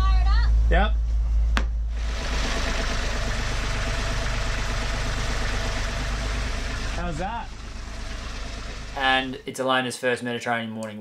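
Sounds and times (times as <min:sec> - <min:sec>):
diesel engine starting and running: 0:01.2 - 0:09.5.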